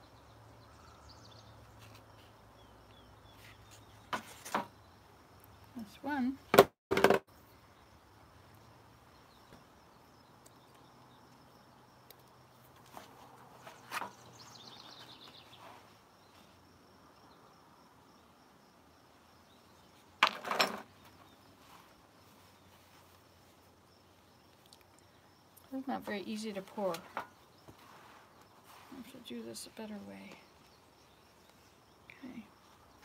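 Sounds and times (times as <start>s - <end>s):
faint steady background: 0.0s - 33.0s
clatter of knocks: 6.6s - 7.2s, 20.2s - 20.9s.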